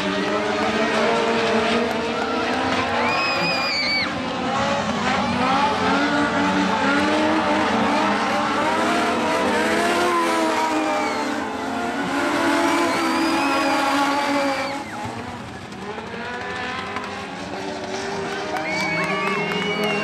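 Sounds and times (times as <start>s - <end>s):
race car engines revving: 0.0s - 20.0s
high squeal: 3.0s - 4.1s, 12.6s - 15.1s.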